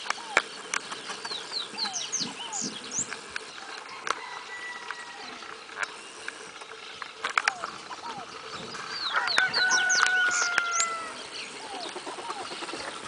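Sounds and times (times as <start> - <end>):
small birds chirping: 0.0 - 13.0
rooster crowing: 3.8 - 5.6, 9.0 - 11.3
sharp clicks: 9.3 - 10.9.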